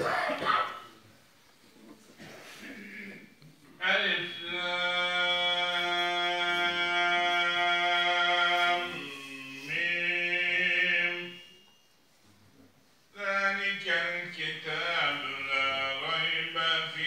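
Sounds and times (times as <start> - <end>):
man chanting: 2.6 - 11.5, 13.2 - 17.0.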